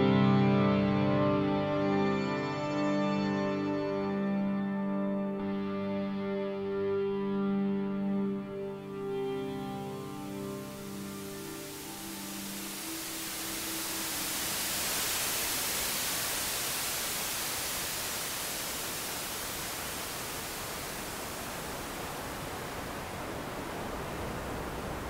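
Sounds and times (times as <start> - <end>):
steady rushing hiss: 8.6 - 25.0.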